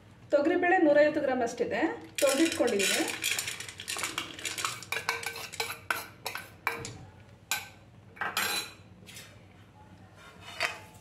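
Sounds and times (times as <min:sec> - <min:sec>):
metal bowl clinking and scraping: 0:02.2 - 0:06.9, 0:07.5 - 0:08.8.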